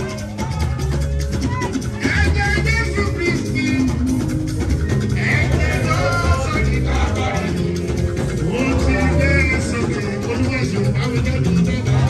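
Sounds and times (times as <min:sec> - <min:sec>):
live band music: 0:00.0 - 0:12.0
person singing: 0:05.0 - 0:12.0.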